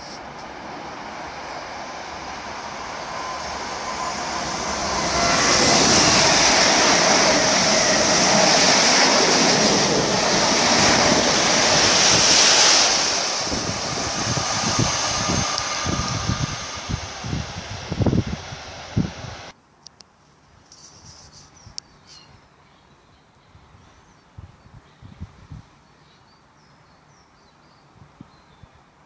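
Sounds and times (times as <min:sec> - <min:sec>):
passenger train passing at speed: 0:00.0 - 0:19.5.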